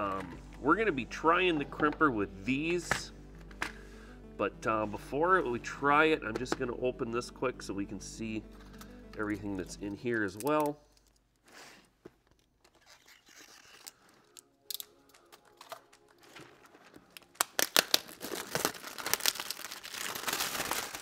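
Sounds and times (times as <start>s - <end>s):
faint clicks and scrapes: 10.4s - 17.1s
plastic wrap crinkling: 10.4s - 21.0s.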